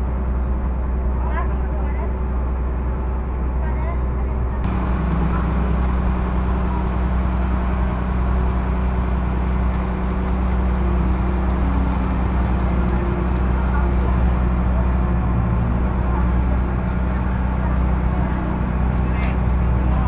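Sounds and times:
motorboat engine droning: 0.0 - 20.0
water rushing: 4.7 - 18.8.

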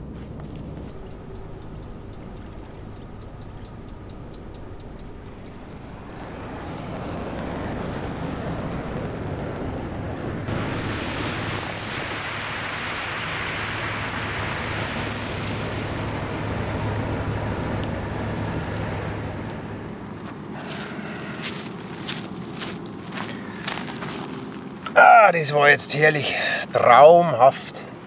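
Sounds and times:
ship engine drone: 0.0 - 28.0
wake washing onto shore: 10.5 - 24.5.

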